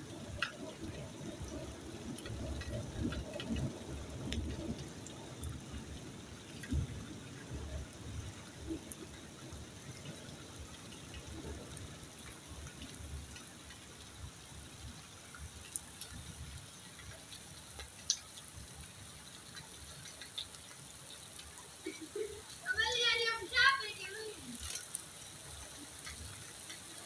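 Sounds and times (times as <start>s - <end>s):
rain falling and splashing: 0.0s - 27.0s
close raindrop taps: 0.1s - 14.5s, 15.4s - 27.0s.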